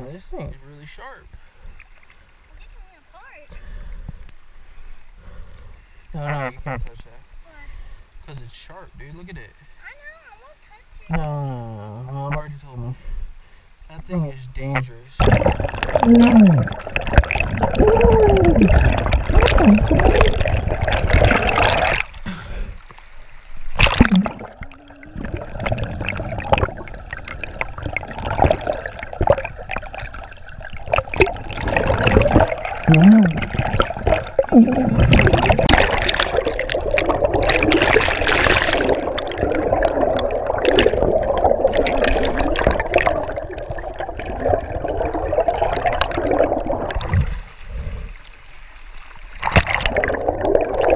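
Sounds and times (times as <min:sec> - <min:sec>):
muffled underwater river current: 0:00.0 - 0:09.8, 0:12.2 - 0:50.9
short warbling sounds: 0:14.7 - 0:22.1, 0:23.8 - 0:47.3.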